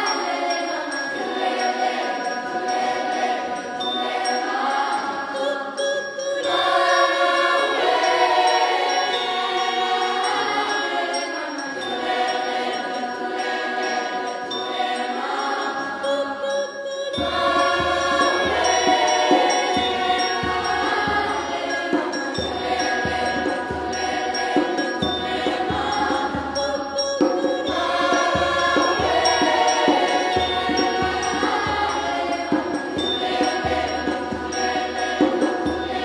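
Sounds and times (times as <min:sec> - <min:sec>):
children's choir singing: 0:00.0 - 0:36.0
hand drums beat: 0:17.2 - 0:36.0.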